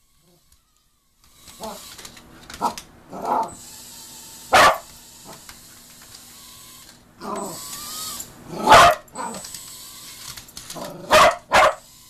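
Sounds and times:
dog drawn-out whine: 0:01.5 - 0:03.6, 0:07.2 - 0:09.6
dog barking: 0:04.5 - 0:04.9, 0:08.6 - 0:09.4, 0:11.0 - 0:11.8.

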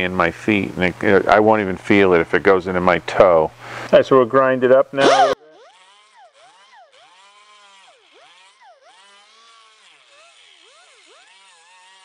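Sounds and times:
angle grinder grinding metal: 0:05.0 - 0:12.0.

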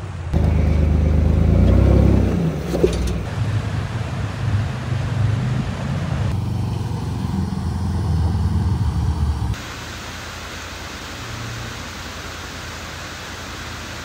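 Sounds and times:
truck engine running: 0:00.0 - 0:09.6.

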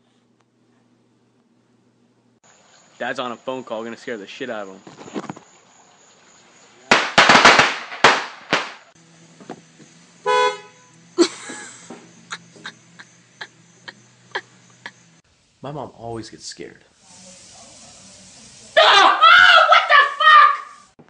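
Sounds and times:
firecracker pops: 0:06.9 - 0:09.6
car horn honk: 0:10.2 - 0:11.0.

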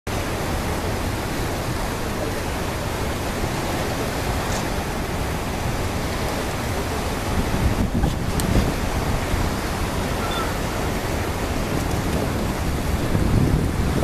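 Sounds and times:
open sea: 0:00.1 - 0:14.0
wind rushing: 0:07.3 - 0:14.0.

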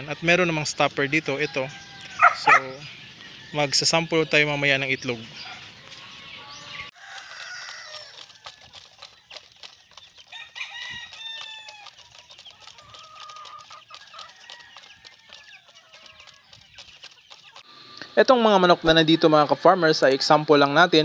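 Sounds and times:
hens clucking: 0:00.0 - 0:03.0, 0:03.9 - 0:20.6
beaks pecking plastic feeders: 0:06.9 - 0:17.7.

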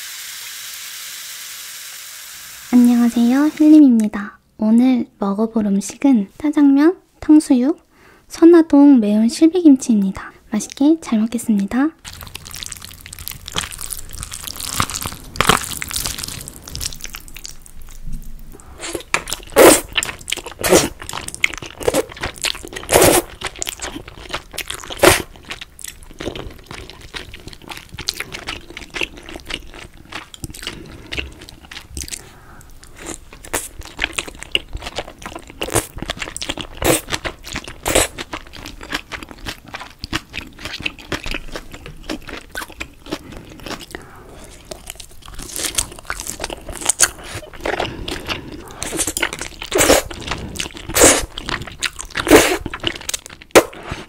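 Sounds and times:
chewing noodles: 0:12.0 - 0:54.0
loud crunching bites: 0:12.1 - 0:17.7.

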